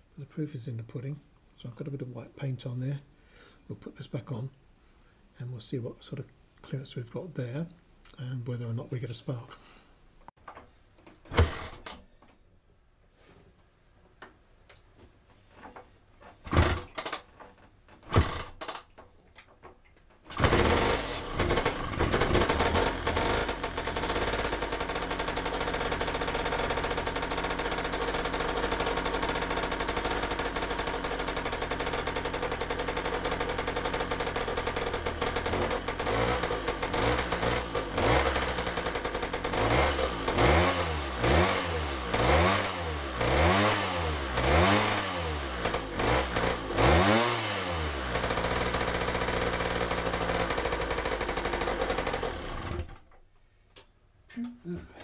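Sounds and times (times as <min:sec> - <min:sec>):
two-stroke engine running: 0:20.3 - 0:53.0.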